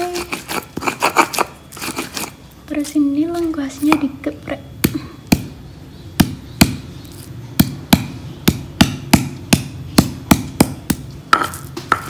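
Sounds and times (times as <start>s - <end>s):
stone pestle pounding in stone mortar: 4.8s - 5.6s, 6.2s - 6.9s, 7.6s - 12.0s.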